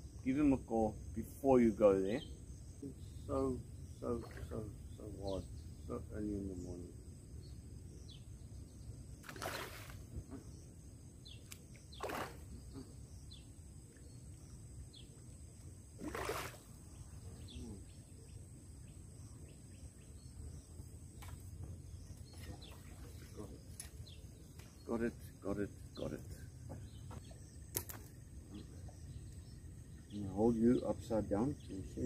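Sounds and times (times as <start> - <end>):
faint bird chirps: 0.0 - 15.4, 16.0 - 32.0
fish splashing at the surface: 9.2 - 10.1, 12.0 - 12.5, 16.0 - 16.7.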